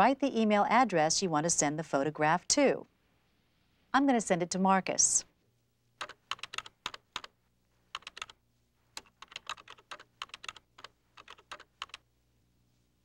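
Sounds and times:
computer keyboard typing: 0:06.0 - 0:07.3, 0:07.9 - 0:08.4, 0:09.0 - 0:12.0.

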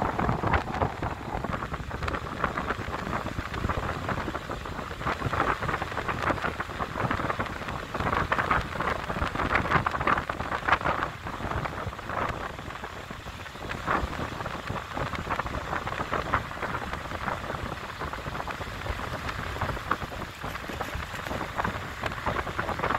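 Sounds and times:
wind buffeting microphone: 0:00.0 - 0:22.9
small waves in shallow surf: 0:15.8 - 0:22.9.

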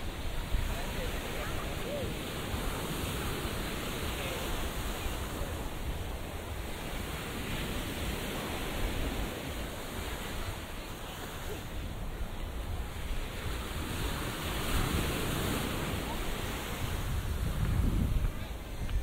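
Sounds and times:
surf washing onto beach: 0:00.0 - 0:19.0
wind buffeting microphone: 0:11.8 - 0:19.0.

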